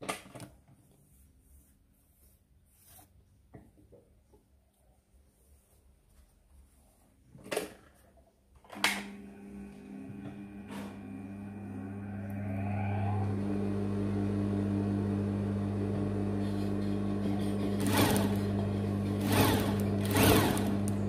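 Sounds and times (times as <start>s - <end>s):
sewing machine motor humming: 9.2s - 21.0s
sewing machine stitching bursts: 17.1s - 21.0s.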